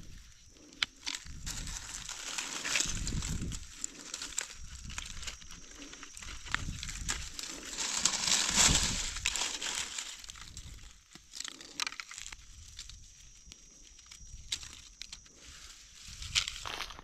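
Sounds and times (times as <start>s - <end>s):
dry leaf litter crunching and rustling: 1.0s - 13.0s.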